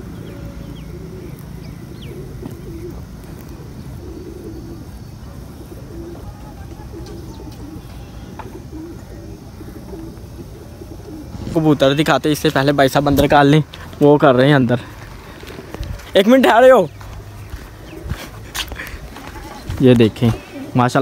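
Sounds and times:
low background noise: 0.0 - 21.0
pigeons cooing: 0.0 - 21.0
small birds chirping: 0.0 - 21.0.

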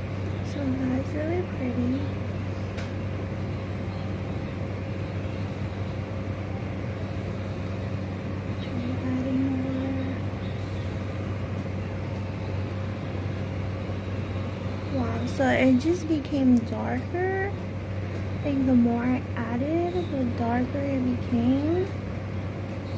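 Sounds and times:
low hum: 0.0 - 22.9.

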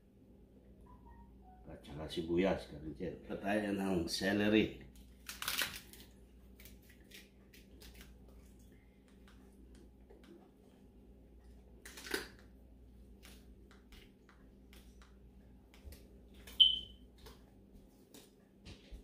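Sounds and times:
low steady hum: 0.0 - 19.0
short high-pitched beep: 16.6 - 16.9.

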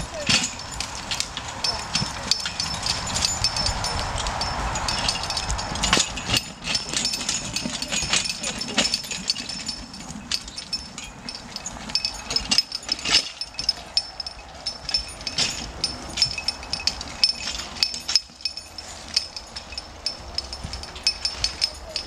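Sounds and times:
chains clinking and rattling: 0.0 - 22.0.

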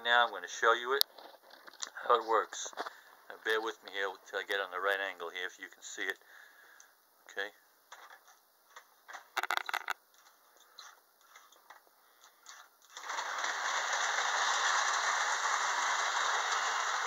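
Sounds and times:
clicks and knocks: 9.4 - 10.0
model train rattling on track: 12.9 - 17.0.

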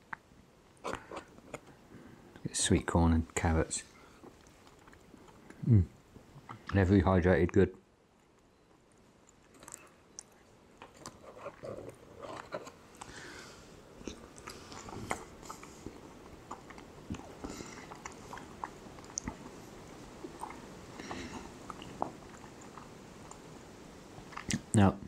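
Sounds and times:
man chewing food: 0.0 - 2.4, 3.9 - 6.8, 8.0 - 24.8.

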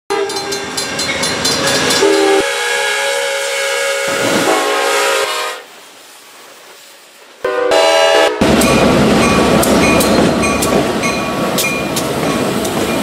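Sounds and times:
train horns and whistles: 0.1 - 0.8, 1.6 - 5.7, 7.4 - 8.7.

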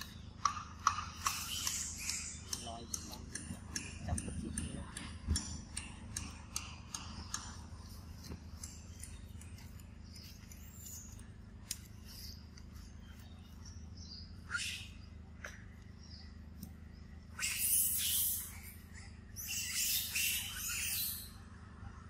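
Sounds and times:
steady low hum: 0.0 - 22.0
faint high animal chirps: 17.4 - 21.4.

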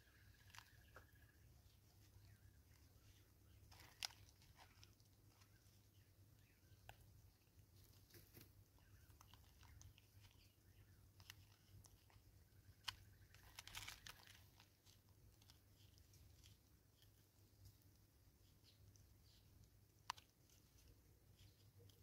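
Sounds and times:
monkey crunching food: 11.1 - 18.0.

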